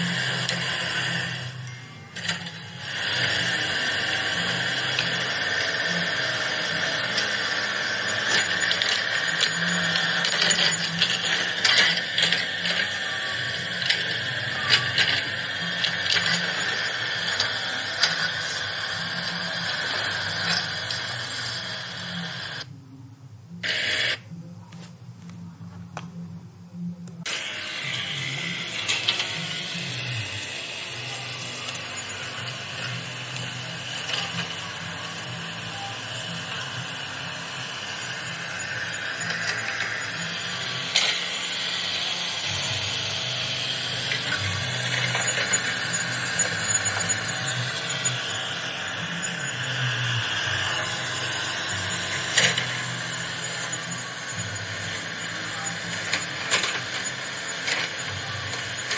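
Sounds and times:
toy excavator motors whirring: 0:00.0 - 0:22.7, 0:23.6 - 0:25.0, 0:27.1 - 0:58.9
toy gearbox clicks: 0:04.2 - 0:18.4, 0:37.9 - 0:48.5, 0:50.6 - 0:54.0.

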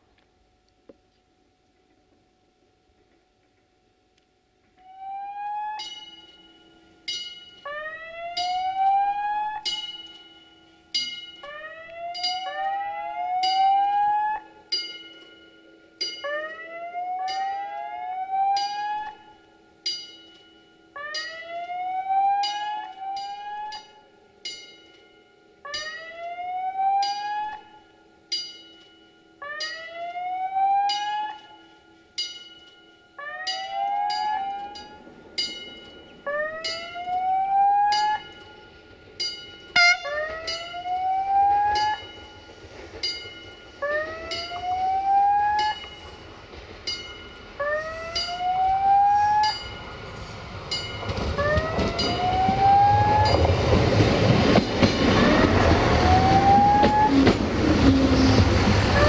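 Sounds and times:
train rumble: 0:33.5 - 0:59.0
level crossing rising electronic tone: 0:39.8 - 0:42.0.

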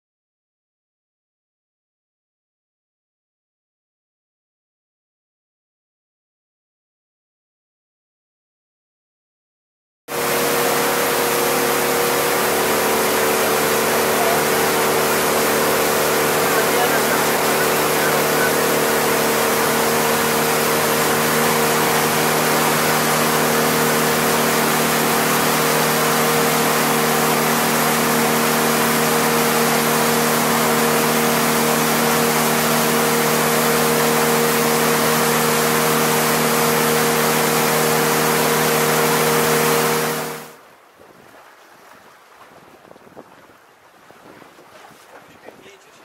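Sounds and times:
speedboat engine drone: 0:10.1 - 0:41.0
rushing water: 0:10.1 - 0:46.0
wind: 0:10.1 - 0:46.0.

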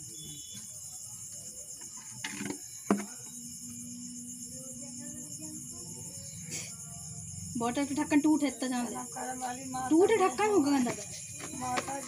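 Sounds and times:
crickets chirring: 0:00.0 - 0:12.0
plastic bottle knock: 0:02.2 - 0:03.1.

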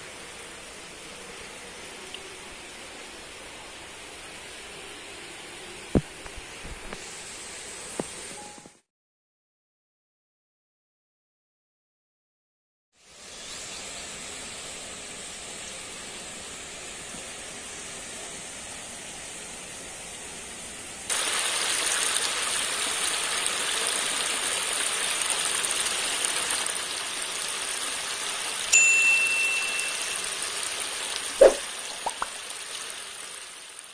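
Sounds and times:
short ding: 0:28.8 - 0:30.4.

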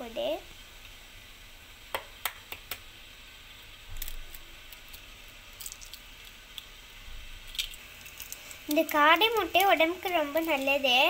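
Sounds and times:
eggshells cracking: 0:03.7 - 0:06.8, 0:07.4 - 0:10.8.

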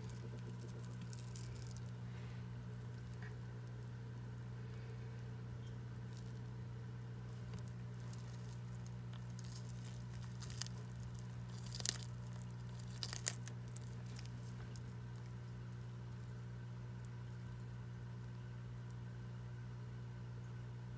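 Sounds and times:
crisp crunches: 0:00.0 - 0:03.9, 0:06.0 - 0:17.8
tortoise biting leafy greens: 0:00.0 - 0:05.3, 0:06.0 - 0:19.0
steady low hum: 0:00.0 - 0:20.9.

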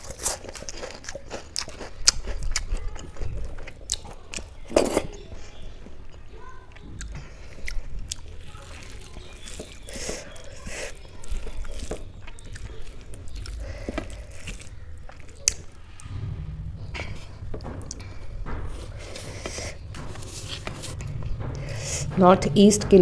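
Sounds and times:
chewing: 0:00.0 - 0:15.8.

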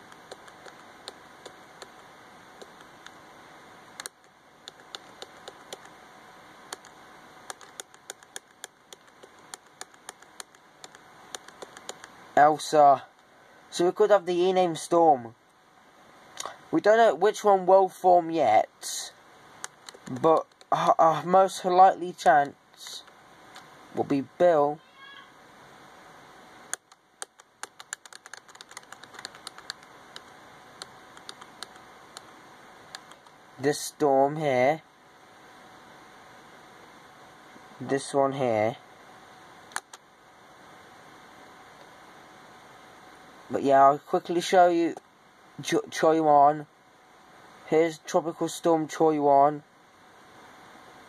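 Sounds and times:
faint steady hiss: 0:00.0 - 0:51.0
computer mouse clicks: 0:00.1 - 0:02.0, 0:02.6 - 0:03.2, 0:04.0 - 0:05.9, 0:06.7 - 0:12.2, 0:19.6 - 0:20.7, 0:26.7 - 0:32.3, 0:32.9 - 0:33.4, 0:39.7 - 0:40.0.

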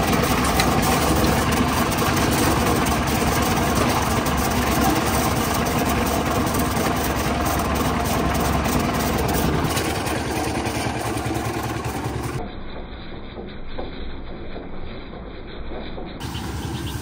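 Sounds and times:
wet concrete churning in drum: 0:00.0 - 0:12.4
concrete mixer engine drone: 0:00.0 - 0:17.0.

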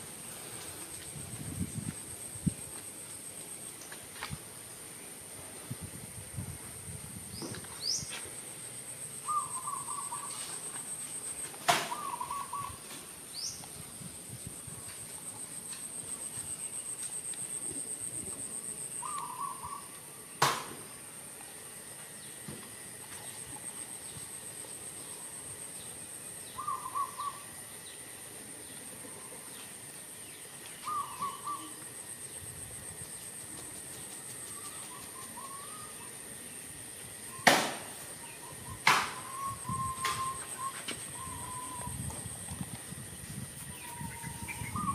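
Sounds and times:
steady high-pitched hiss: 0:00.0 - 0:44.9
bird warbling call: 0:09.2 - 0:10.6, 0:11.8 - 0:13.6, 0:19.0 - 0:19.9, 0:26.5 - 0:27.5, 0:30.8 - 0:31.8, 0:34.5 - 0:36.2, 0:38.2 - 0:42.2, 0:43.7 - 0:44.9.

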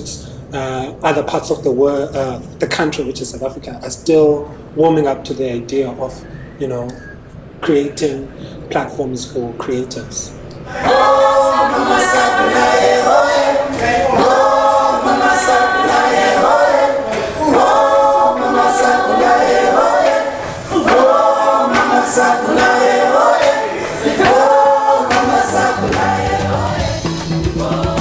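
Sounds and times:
voices singing in harmony: 0:10.6 - 0:28.0
bass line: 0:24.0 - 0:28.0.

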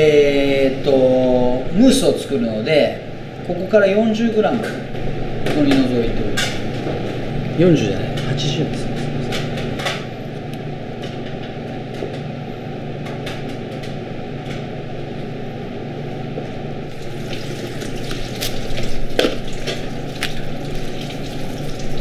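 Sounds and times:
plastic wrap rustling: 0:17.0 - 0:22.0.

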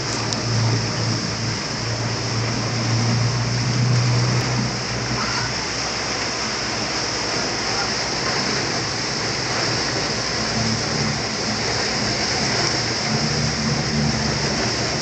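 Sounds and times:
motorboat engine drone: 0:00.0 - 0:15.0
water rushing: 0:00.0 - 0:15.0.

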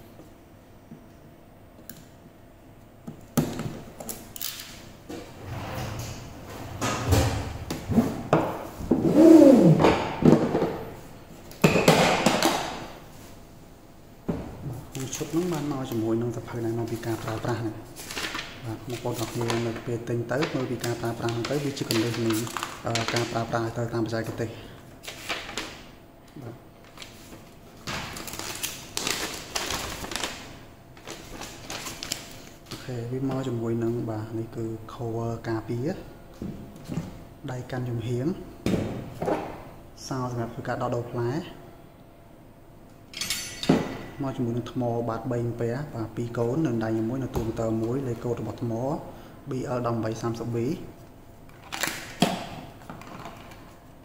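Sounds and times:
paper rustling and crackling: 0:14.9 - 0:16.0, 0:16.6 - 0:23.5, 0:25.0 - 0:25.9, 0:26.8 - 0:32.8.

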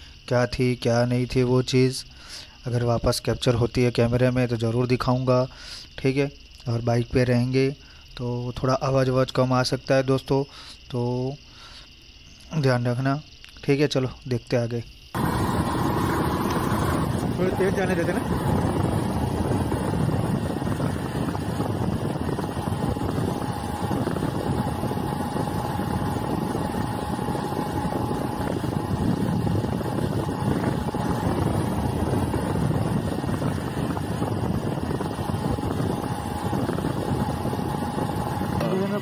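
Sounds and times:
wind noise on microphone: 0:15.1 - 0:39.0
motorcycle engine running: 0:15.2 - 0:39.0.

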